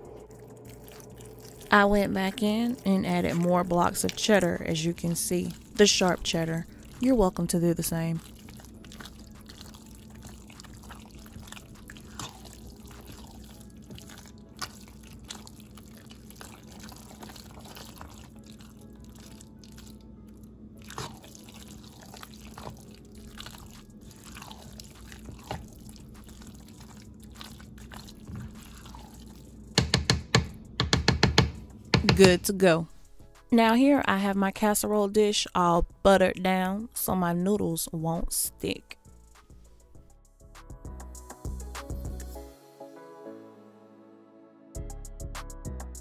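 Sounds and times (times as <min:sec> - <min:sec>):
low hum: 0:00.0 - 0:15.9
music: 0:00.0 - 0:27.5, 0:29.5 - 0:46.0
wet squelching of stirred pasta: 0:00.1 - 0:20.1, 0:20.8 - 0:29.8.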